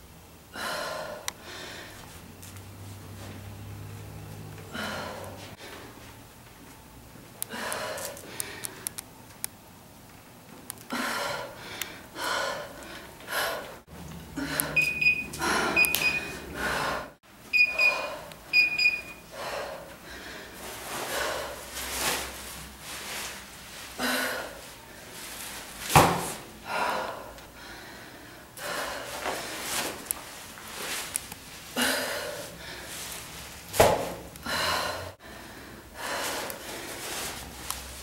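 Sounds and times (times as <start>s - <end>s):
woman breathing hard: 0.5s - 2.1s, 4.6s - 6.0s, 7.4s - 8.9s, 10.9s - 18.4s, 19.2s - 21.9s, 23.9s - 25.2s, 26.6s - 29.8s, 31.7s - 33.3s, 34.4s - 37.4s
short electronic beeps: 14.7s - 16.4s, 17.5s - 19.2s.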